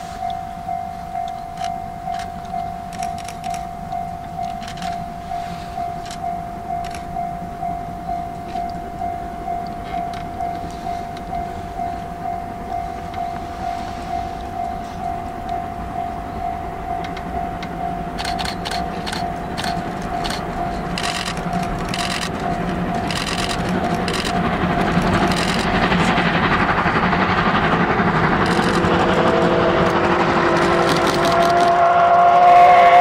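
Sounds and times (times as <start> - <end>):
steam locomotive exhaust beats: 0.0 - 33.0
sharp clicks: 1.3 - 5.0, 6.0 - 6.2, 6.8 - 7.1, 17.0 - 26.0, 28.4 - 29.0, 30.6 - 31.8
steam whistle: 28.4 - 33.0.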